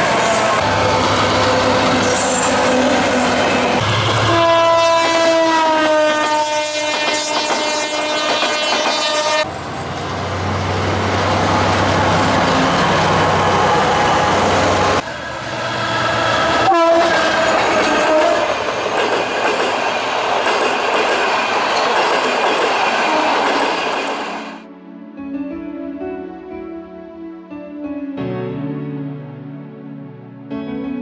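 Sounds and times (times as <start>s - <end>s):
train coaches rushing past: 0.0s - 24.6s
locomotive horn chord: 0.2s - 9.5s, 16.6s - 18.5s.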